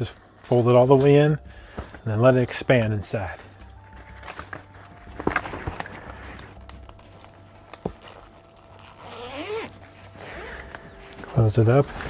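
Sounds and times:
fabric rustling: 3.2 - 12.0.

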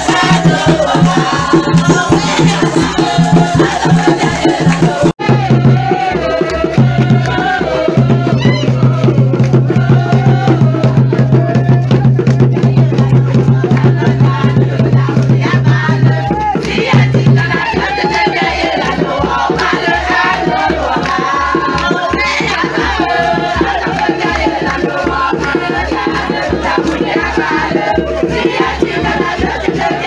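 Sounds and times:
person singing: 0.0 - 15.1
dance music with beat: 0.0 - 30.0.

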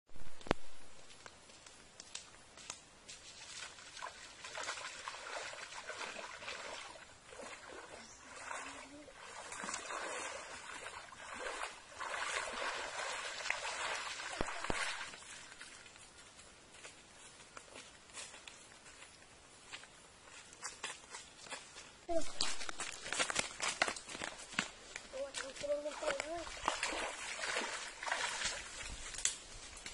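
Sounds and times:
feet wading through muddy water: 3.0 - 16.4, 21.6 - 29.9.

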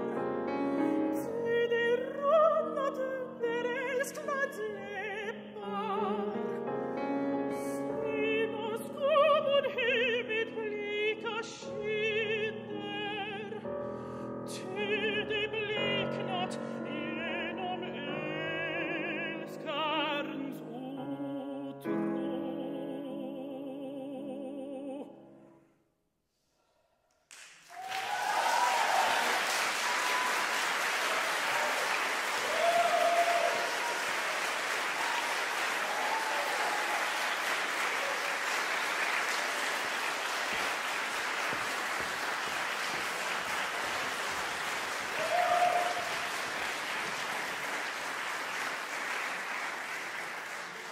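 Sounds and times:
piano: 0.0 - 25.8, 27.7 - 50.9
soprano singing with vibrato: 0.5 - 6.7, 7.4 - 13.7, 14.4 - 25.3
audience applause: 27.3 - 50.9.

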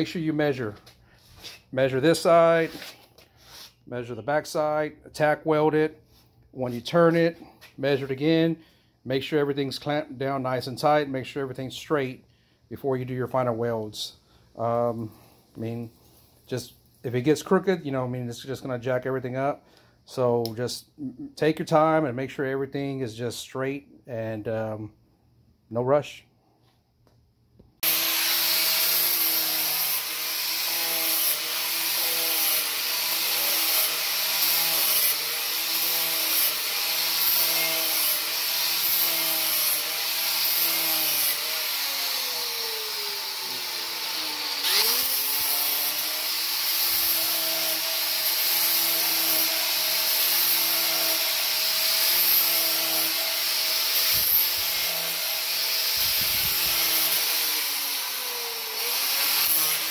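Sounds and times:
angle grinder grinding steel: 27.8 - 59.9.

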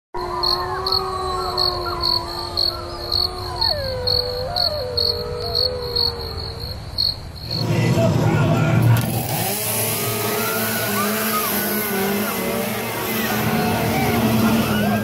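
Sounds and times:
crickets chirping: 0.2 - 7.8
eerie gliding tones: 7.4 - 15.0.

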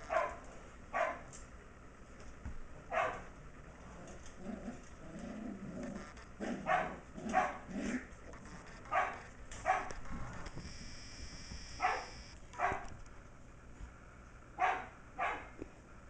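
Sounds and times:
puppy barking in high yips: 0.0 - 0.4, 1.0 - 1.3, 2.9 - 3.3, 6.6 - 7.6, 8.8 - 10.0, 11.8 - 12.9, 14.6 - 15.6.

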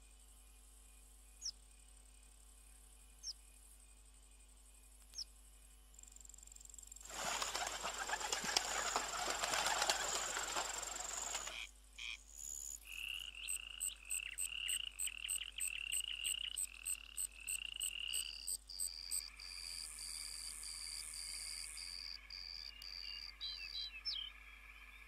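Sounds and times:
frogs calling: 7.1 - 20.2, 20.9 - 25.0.

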